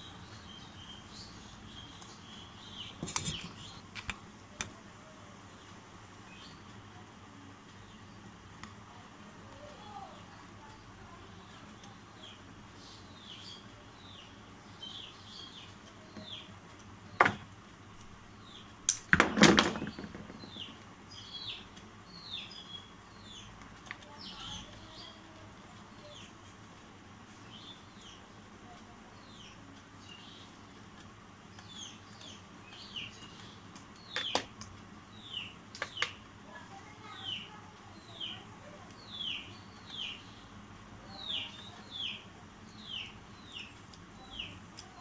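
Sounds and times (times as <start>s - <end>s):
small birds chirping: 0.0s - 45.0s.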